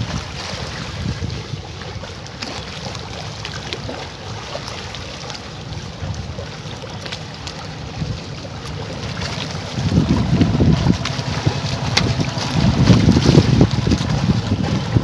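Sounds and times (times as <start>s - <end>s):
wind rumbling on microphone: 0.0s - 2.2s, 5.6s - 15.0s.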